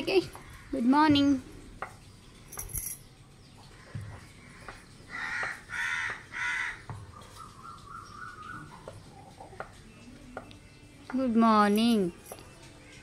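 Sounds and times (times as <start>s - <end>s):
crow cawing: 3.8s - 6.9s.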